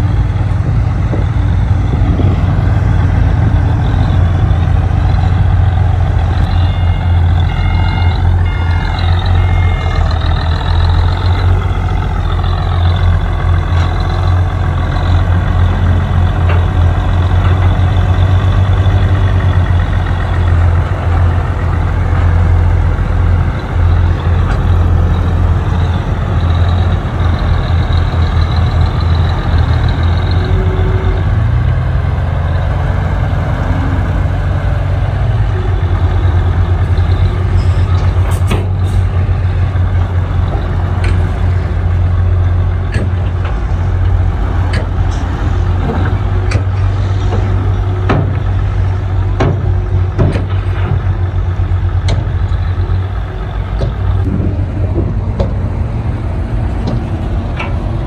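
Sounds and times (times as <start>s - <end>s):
diesel engine running loudly: 0.0s - 58.0s
sharp metal knocks and clanks: 42.9s - 48.6s, 49.3s - 51.2s.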